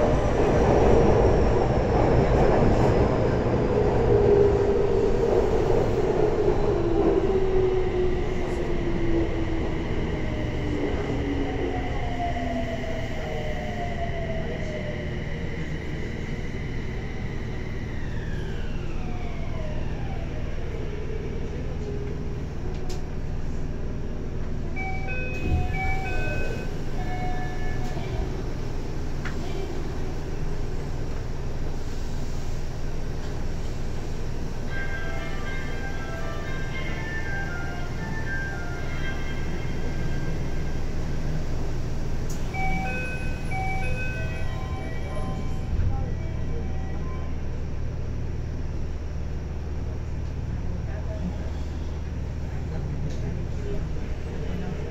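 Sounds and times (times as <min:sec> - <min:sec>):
subway train rumble: 0:00.0 - 0:54.9.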